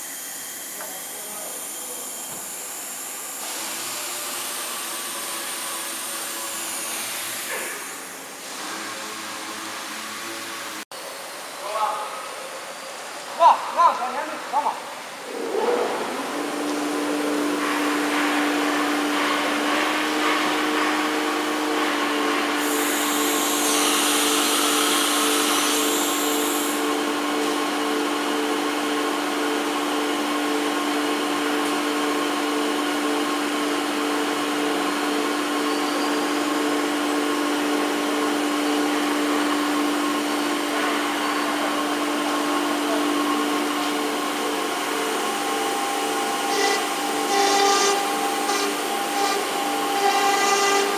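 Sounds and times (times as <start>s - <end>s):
router spindle whine: 0.0s - 10.8s, 19.8s - 31.2s, 32.0s - 50.9s
loud hiss: 22.6s - 26.8s.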